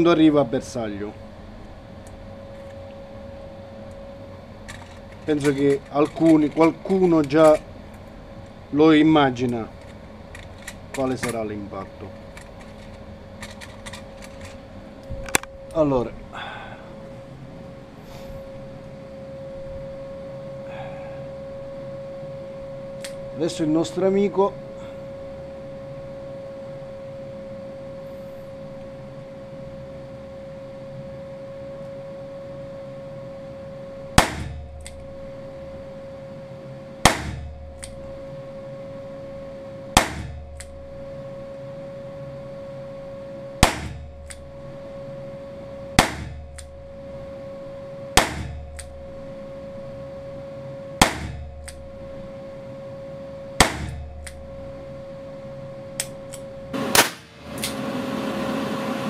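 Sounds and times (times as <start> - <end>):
steady hum: 0.0 - 59.0
revolver shots: 40.0 - 40.4, 43.6 - 44.0, 46.0 - 46.4, 48.2 - 48.6, 51.0 - 51.4, 53.6 - 54.0.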